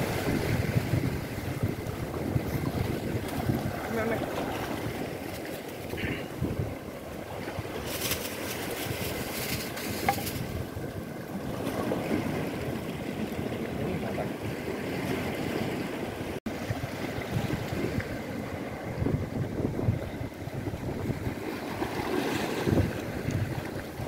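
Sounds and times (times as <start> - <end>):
waves washing against rocks: 0.0 - 24.0
wind buffeting microphone: 0.0 - 24.0
scratchy rustle: 7.8 - 10.5.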